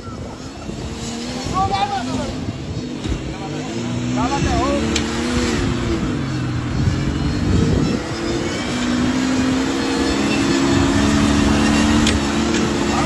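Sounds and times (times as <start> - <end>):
car engine revving hard: 0.0 - 13.0.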